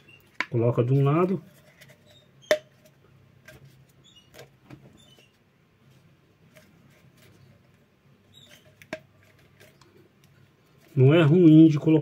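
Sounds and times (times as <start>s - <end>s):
short high squeaks: 1.9s - 2.7s, 4.0s - 5.4s, 8.3s - 8.8s.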